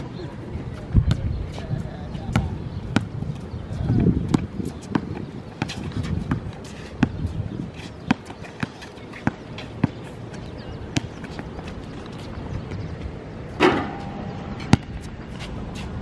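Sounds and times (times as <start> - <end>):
basketball bouncing: 2.3 - 3.2, 4.0 - 7.3, 10.9 - 11.7, 13.6 - 15.3.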